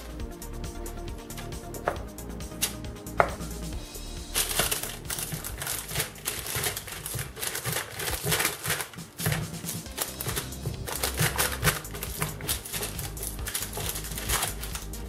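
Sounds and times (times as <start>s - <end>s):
baking parchment crinkling: 4.3s - 15.0s.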